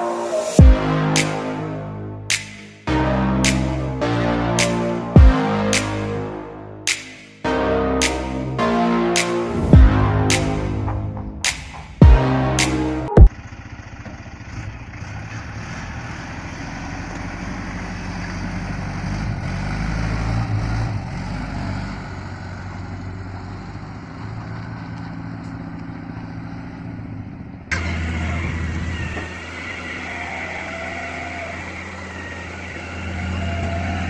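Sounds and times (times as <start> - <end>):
truck engine running: 0.0 - 34.0
vehicle running: 0.0 - 34.0
sharp bang: 0.5 - 6.2, 6.9 - 13.3.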